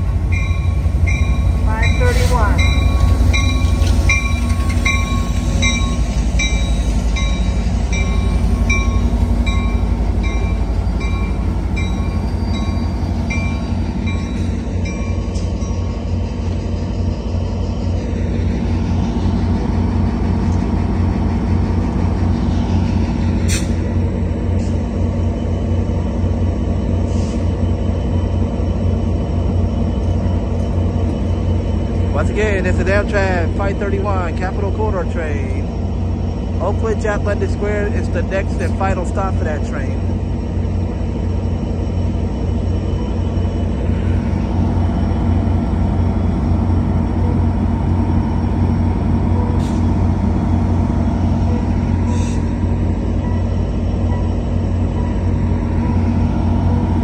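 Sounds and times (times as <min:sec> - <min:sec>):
locomotive bell ringing: 0:00.0 - 0:16.2, 0:44.6 - 0:56.8
diesel engine rumble: 0:00.0 - 0:57.0.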